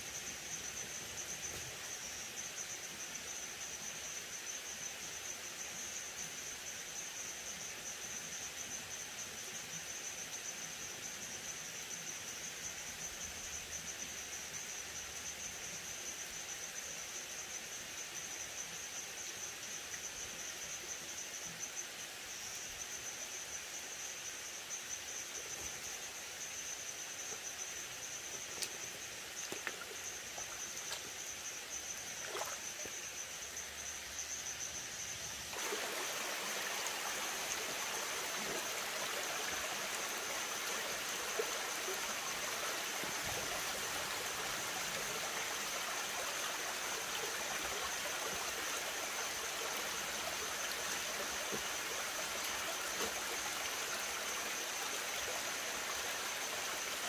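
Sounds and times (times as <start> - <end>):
high-pitched insect chorus: 0.0 - 57.0
stream trickling over rocks: 25.4 - 33.4, 35.4 - 57.0.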